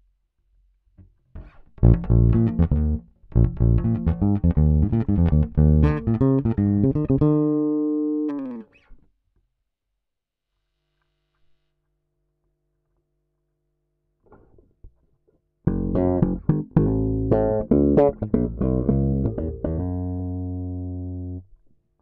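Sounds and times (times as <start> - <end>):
electric bass plucked notes: 1.8 - 8.6, 15.6 - 21.5.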